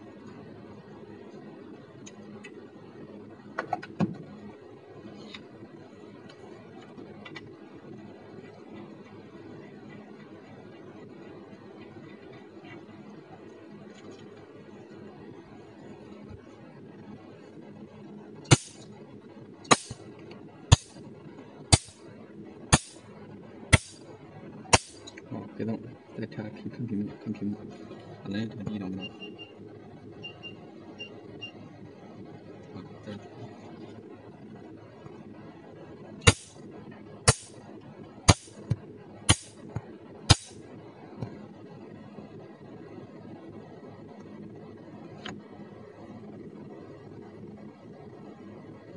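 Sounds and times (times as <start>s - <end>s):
low steady hum: 0.0s - 48.9s
laser pulses snapping: 18.5s - 18.8s, 19.7s - 20.0s, 20.7s - 21.0s, 21.7s - 22.0s, 22.7s - 23.0s, 23.7s - 24.0s, 24.7s - 25.1s, 36.3s - 36.6s, 37.3s - 37.5s, 39.3s - 39.6s, 40.3s - 40.6s.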